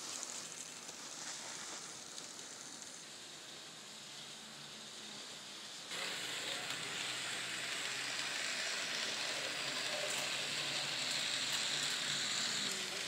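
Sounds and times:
model trains whirring on track: 0.0 - 13.0.

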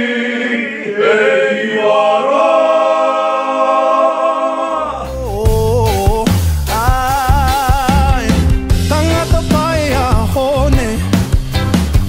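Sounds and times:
boys singing together unaccompanied: 0.0 - 6.2
recorded music with deep bass: 4.8 - 12.0.

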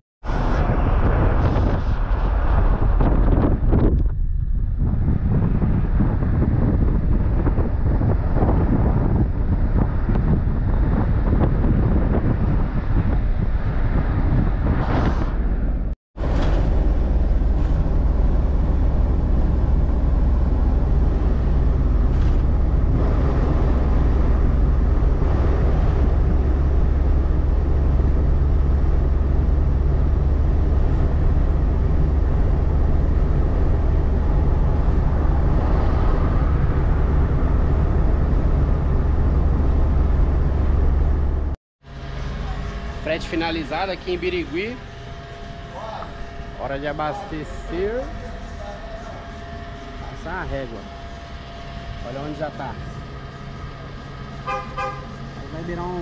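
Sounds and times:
wind buffeting microphone: 0.2 - 41.6
diesel truck engine drone: 0.2 - 56.0
road noise: 0.2 - 56.0.

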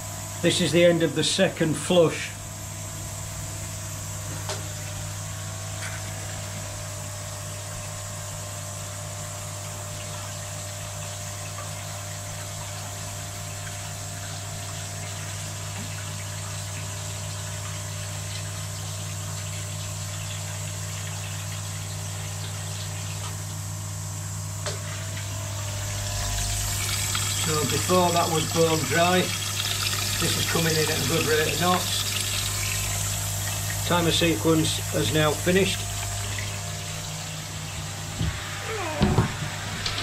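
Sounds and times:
pump humming: 0.0 - 40.0
water flowing: 9.7 - 40.0.

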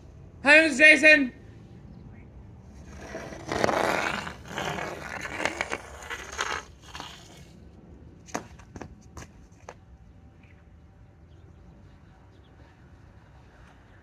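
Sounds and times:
hockey stick and puck scraping asphalt: 2.7 - 9.9.

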